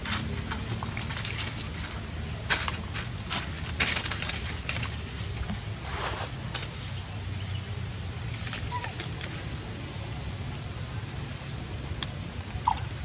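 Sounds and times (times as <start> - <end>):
steady high whine: 0.0 - 8.7.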